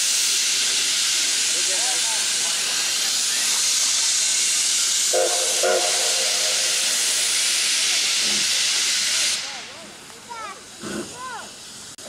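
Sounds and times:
steam hissing from cylinder cocks: 0:00.0 - 0:12.0
steam whistle toots: 0:05.1 - 0:07.9.

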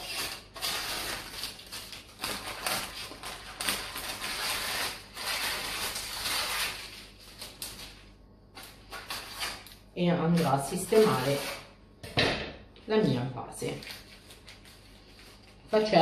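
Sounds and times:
scissors snipping paper: 0:00.0 - 0:07.8
stiff paper crinkling: 0:00.0 - 0:08.0, 0:13.6 - 0:16.0.

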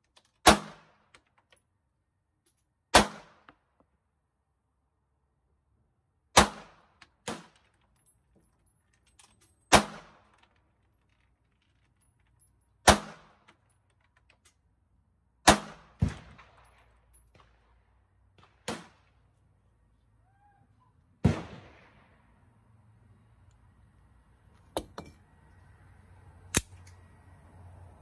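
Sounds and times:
pistol shots: 0:00.4 - 0:01.0, 0:02.9 - 0:03.5, 0:06.3 - 0:07.5, 0:09.7 - 0:10.2, 0:12.8 - 0:13.4, 0:15.4 - 0:16.7, 0:21.2 - 0:22.0.

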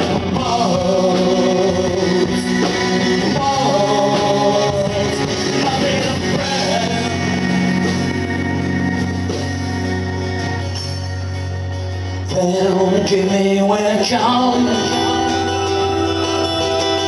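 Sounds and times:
man singing: 0:00.0 - 0:08.1, 0:12.2 - 0:17.0
live rock band playing: 0:00.0 - 0:17.0.

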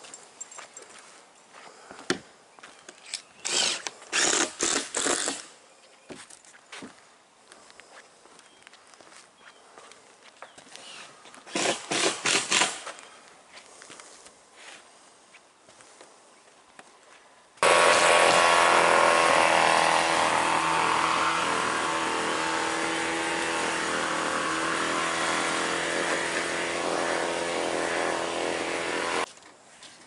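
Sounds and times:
small engine running steadily: 0:17.6 - 0:29.3.

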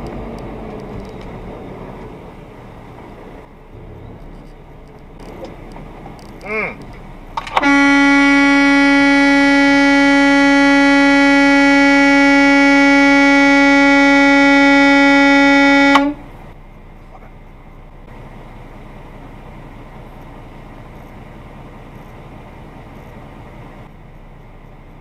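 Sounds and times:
truck horn blast: 0:07.4 - 0:16.5.

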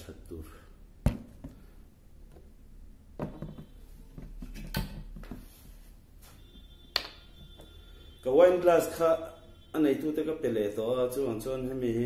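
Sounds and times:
glass bottle knocks and clinks: 0:03.2 - 0:03.7.

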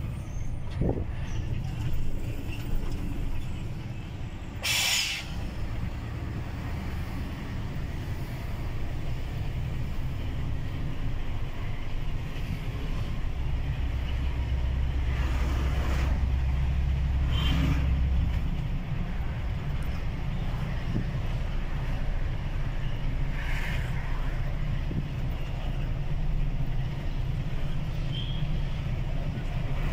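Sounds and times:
road noise: 0:00.0 - 0:29.9
truck engine drone: 0:00.0 - 0:29.9
sharp air hiss: 0:04.6 - 0:05.4.

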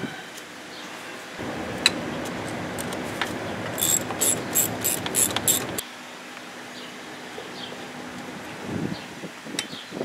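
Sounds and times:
steady background noise: 0:00.0 - 0:09.5
ratchet wrench clicking: 0:03.7 - 0:05.8.

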